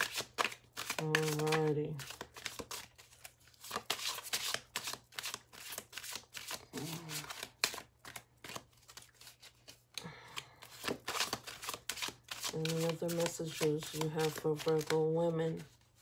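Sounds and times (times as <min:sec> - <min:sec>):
cards being shuffled: 0:00.0 - 0:16.0.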